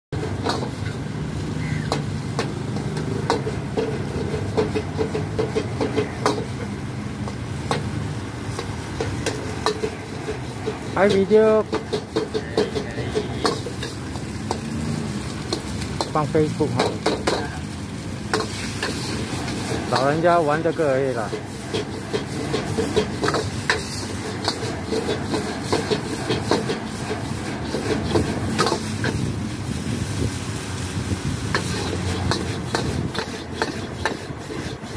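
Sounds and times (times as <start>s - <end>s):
gas wok burner rumbling: 0.2s - 34.9s
metal ladle scraping a wok: 8.5s - 17.5s, 18.2s - 30.4s, 31.0s - 34.9s.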